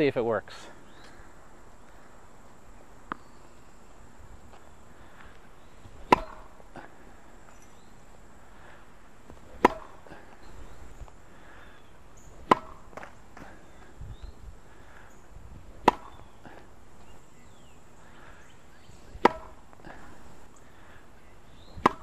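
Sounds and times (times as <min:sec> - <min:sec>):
tennis racket hitting ball: 0:06.0 - 0:06.6, 0:09.5 - 0:10.1, 0:12.4 - 0:13.6, 0:15.8 - 0:16.3, 0:19.2 - 0:19.8, 0:21.8 - 0:22.0.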